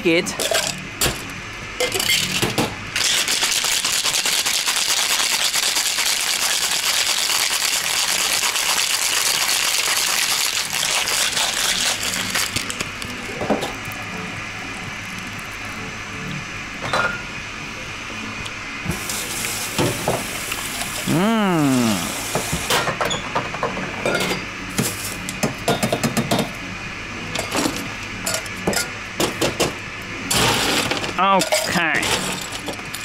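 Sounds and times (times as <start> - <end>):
scoop rattling in crushed ice: 3.0 - 12.8.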